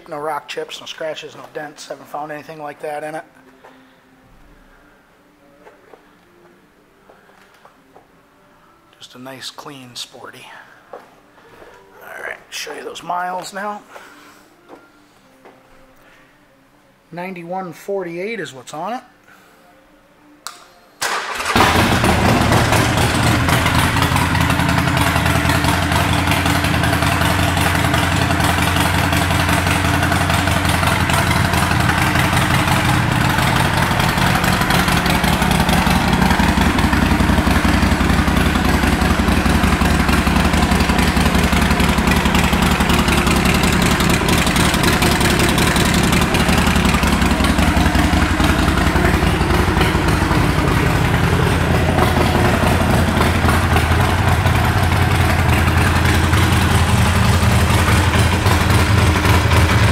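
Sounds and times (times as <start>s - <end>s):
motorcycle engine idling: 21.2s - 59.9s.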